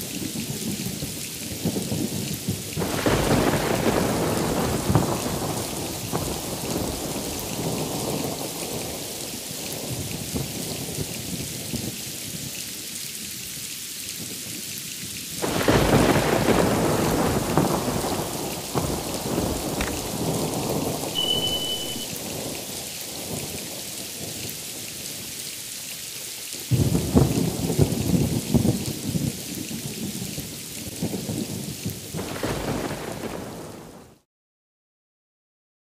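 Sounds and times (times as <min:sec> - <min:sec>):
heavy rain: 0:00.0 - 0:34.2
distant thunder rumbling: 0:02.8 - 0:08.4, 0:15.4 - 0:22.6, 0:32.2 - 0:34.0
loud thunderclaps: 0:02.8 - 0:08.8, 0:15.4 - 0:22.6, 0:26.7 - 0:30.3, 0:30.9 - 0:34.0.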